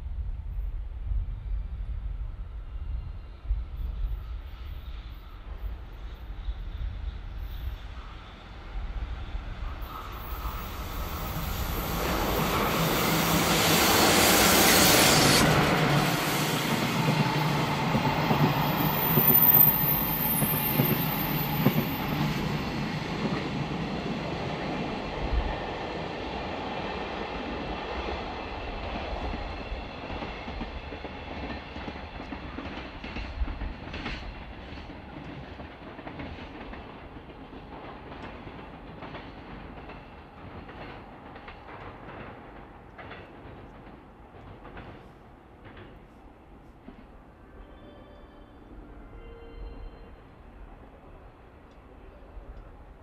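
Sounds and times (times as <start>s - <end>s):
electric locomotive passing: 0.8s - 53.0s
rail-joint clacks: 31.4s - 46.1s.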